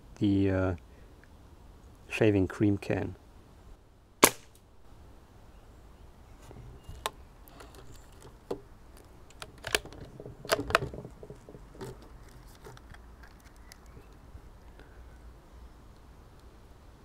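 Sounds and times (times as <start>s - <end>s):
gun handling: 6.9s - 14.2s.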